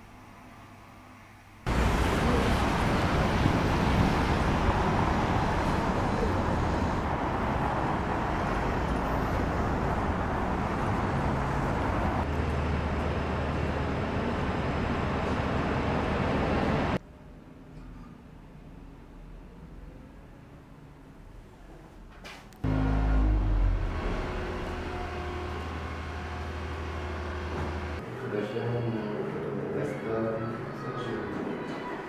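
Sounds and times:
city traffic noise: 0:01.7 - 0:17.0, 0:22.6 - 0:28.2.

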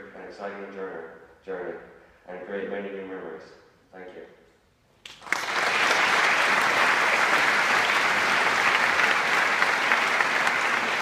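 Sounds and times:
congregation applauding: 0:05.0 - 0:11.0.

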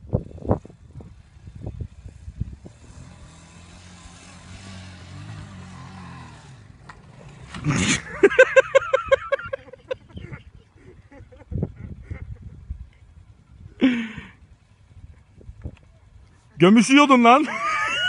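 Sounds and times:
atv engine running at low revs: 0:00.0 - 0:17.8.

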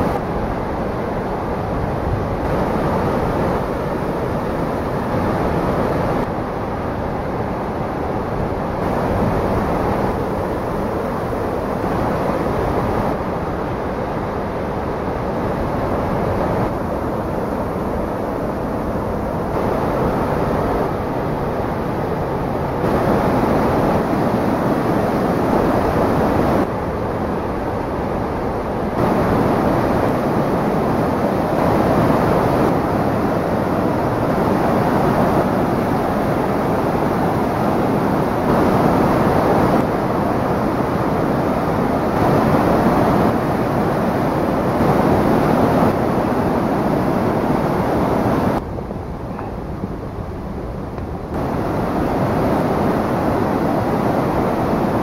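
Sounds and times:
waterfall rushing: 0:51.4 - 0:55.0.

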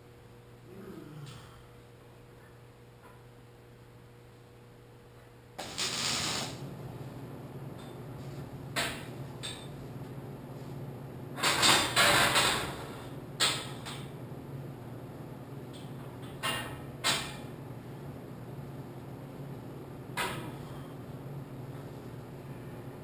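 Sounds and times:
steady low hum: 0:00.0 - 0:23.0
welding arc crackling: 0:05.6 - 0:06.7.

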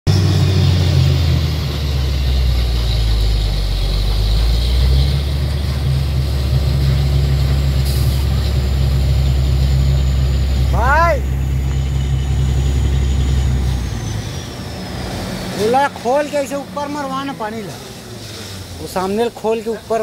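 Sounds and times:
deep engine drone: 0:00.0 - 0:20.0
hiss of water and mud: 0:07.8 - 0:08.9, 0:17.3 - 0:20.0.

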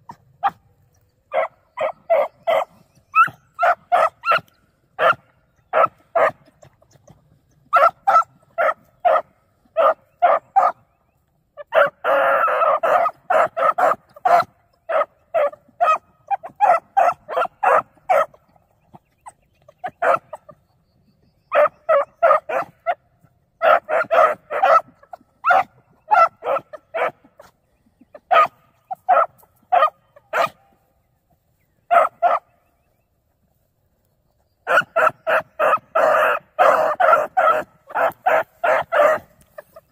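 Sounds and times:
beagle pups barking: 0:00.0 - 0:20.7, 0:21.4 - 0:32.8, 0:34.6 - 0:39.9
dog bawling: 0:34.7 - 0:39.9.

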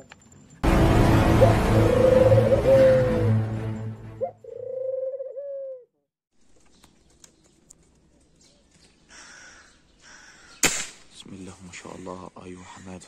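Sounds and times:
faint outdoor background: 0:00.0 - 0:13.0
dove cooing: 0:04.2 - 0:05.9.

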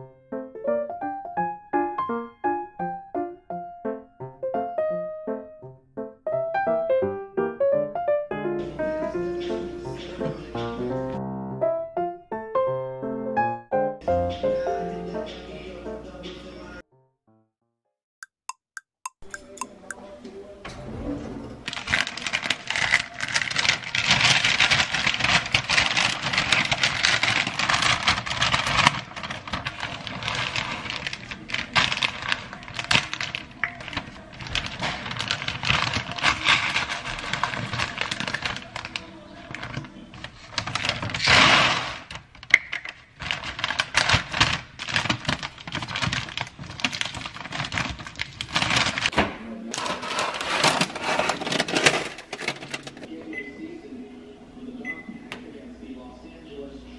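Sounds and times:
paper bag rustling: 0:20.7 - 0:53.1
plastic bag crinkling: 0:21.6 - 0:49.1, 0:49.8 - 0:53.1
popcorn kernels rattling: 0:21.7 - 0:49.1, 0:49.8 - 0:53.1.

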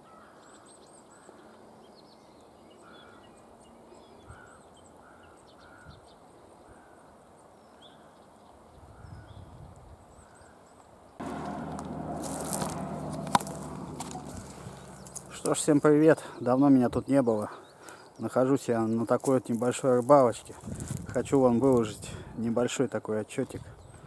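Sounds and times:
faint birdsong: 0:00.0 - 0:20.5, 0:21.4 - 0:24.0
sudden loud noise: 0:11.2 - 0:15.8.

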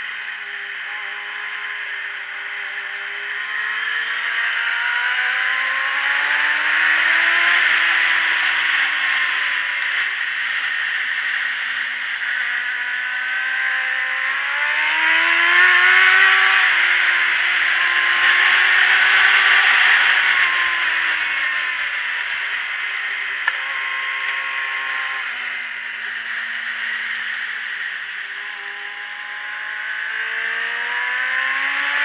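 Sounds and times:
motorcycle engine: 0:00.0 - 0:32.0.

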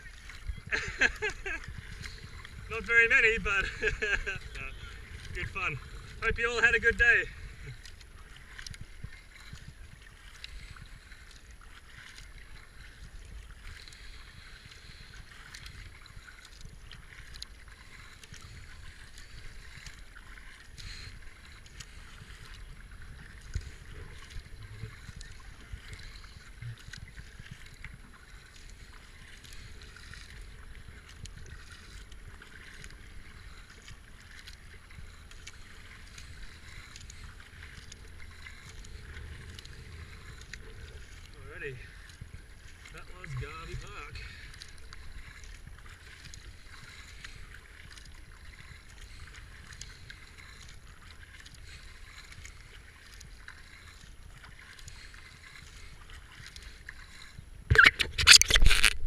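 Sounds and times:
wind rumble on microphone: 0:00.0 - 0:11.1, 0:21.2 - 0:28.3
kayak paddle strokes in water: 0:00.0 - 0:59.0
water splashes and drips: 0:00.0 - 0:59.0.

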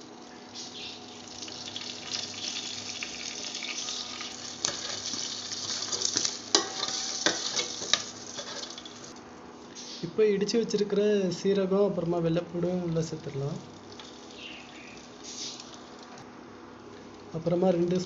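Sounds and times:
faint cooktop hum: 0:00.0 - 0:18.0
spices sizzling in hot oil: 0:00.6 - 0:09.2, 0:12.8 - 0:16.2.

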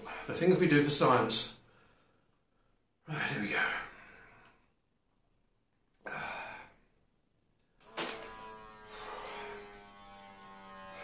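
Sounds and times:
heavy breath out: 0:06.0 - 0:06.9.

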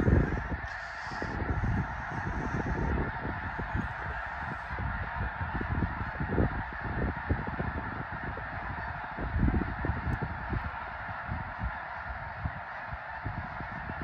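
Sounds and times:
geese honking: 0:00.0 - 0:14.0
wind buffeting microphone: 0:00.0 - 0:14.0.

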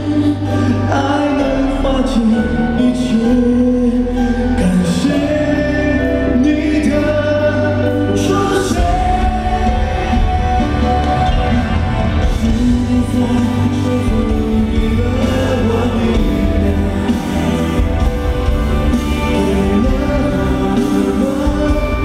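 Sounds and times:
band backing music: 0:00.0 - 0:22.0
man singing into a microphone: 0:00.0 - 0:22.0.

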